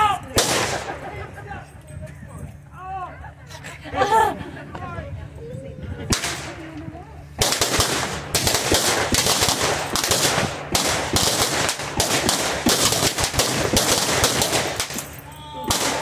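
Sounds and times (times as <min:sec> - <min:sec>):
blank gunfire volley: 0:00.4 - 0:01.1, 0:06.1 - 0:06.7, 0:07.4 - 0:15.1, 0:15.7 - 0:16.0.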